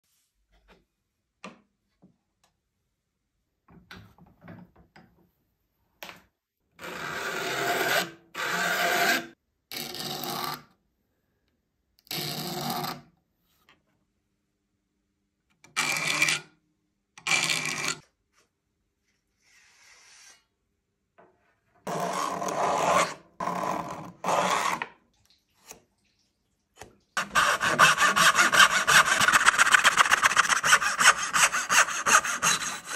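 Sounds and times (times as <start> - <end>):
saw cutting wood: 6.8 - 9.4, 21.9 - 24.8, 27.2 - 32.9
file rasping across saw teeth: 27.2 - 32.9.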